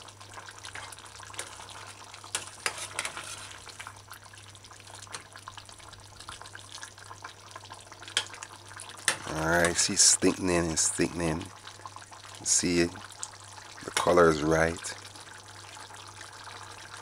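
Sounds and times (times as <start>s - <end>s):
stew simmering hiss: 0.0s - 17.0s
metal spoon scraping pot: 2.3s - 3.7s.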